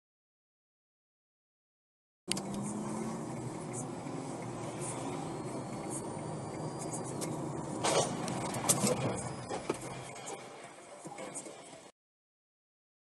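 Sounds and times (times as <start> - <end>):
car road and engine noise: 2.3 - 11.9
collision crash: 7.8 - 10.3.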